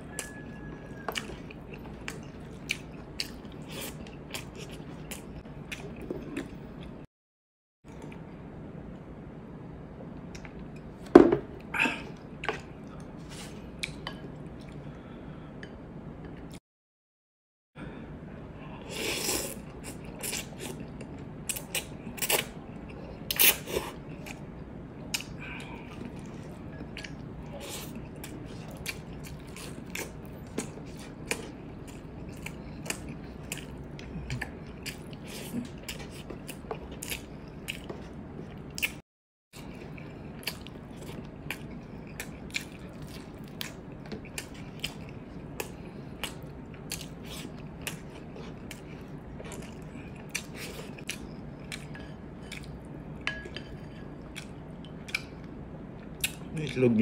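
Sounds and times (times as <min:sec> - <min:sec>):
chewing with mouth clicks: 0:00.1 - 0:07.0, 0:25.0 - 0:39.0, 0:39.6 - 0:56.8.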